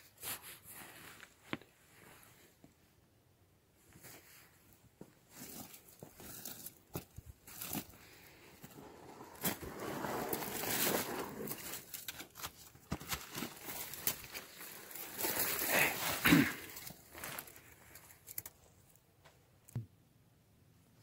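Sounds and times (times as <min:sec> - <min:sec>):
dry grass rustling and crackling: 0:04.0 - 0:19.0.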